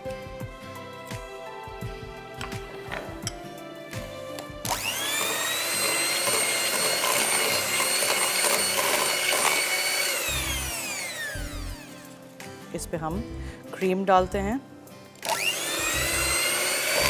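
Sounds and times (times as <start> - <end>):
electric hand mixer whining: 4.4 - 12.2, 15.2 - 17.0.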